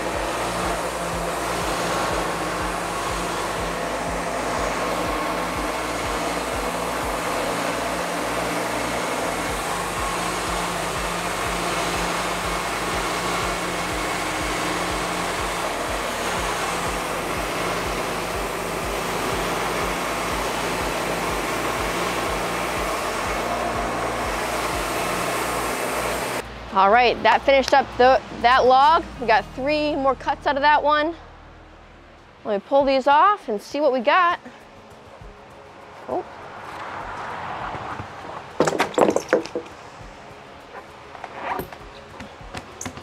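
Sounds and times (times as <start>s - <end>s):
sawmill engine running: 0.0s - 29.4s.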